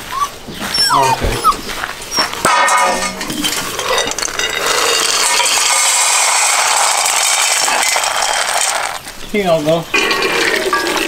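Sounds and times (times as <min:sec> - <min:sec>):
pellets clinking on dish: 0:03.7 - 0:09.0
dry pet food pouring into bowl: 0:04.2 - 0:09.0.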